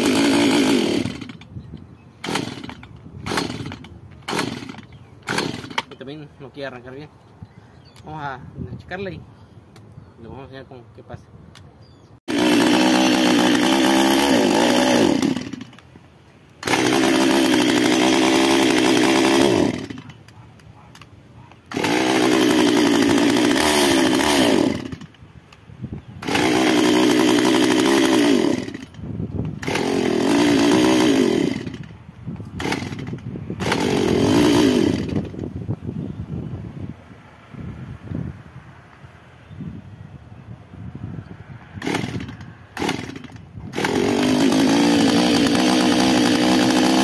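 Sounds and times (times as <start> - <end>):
chainsaw engine revving: 0.0 - 1.5, 2.2 - 6.1, 12.3 - 15.8, 16.6 - 20.2, 21.6 - 25.2, 26.2 - 31.9, 32.6 - 35.4, 41.7 - 47.0.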